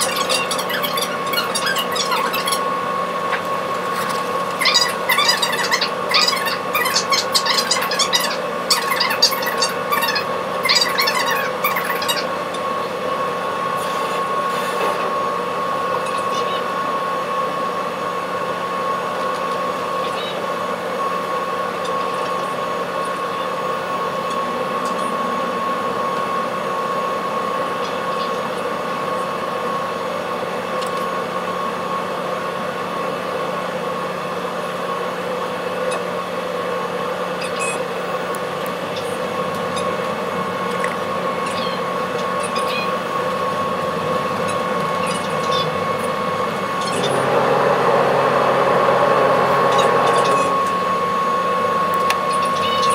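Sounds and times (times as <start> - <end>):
ferry machinery droning: 0.0 - 28.4, 42.7 - 52.9
high whine: 45.8 - 52.6.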